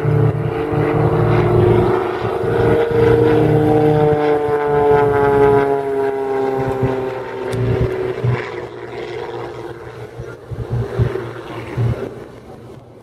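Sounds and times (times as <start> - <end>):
propeller plane engine droning: 0.0 - 13.0
wind on microphone: 0.0 - 13.0.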